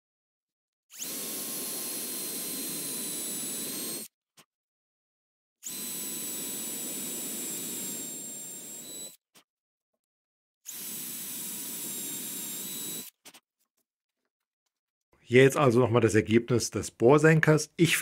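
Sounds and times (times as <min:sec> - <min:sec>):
cordless drill whining in wood: 0:00.9 - 0:04.1, 0:05.6 - 0:09.2, 0:10.6 - 0:13.2.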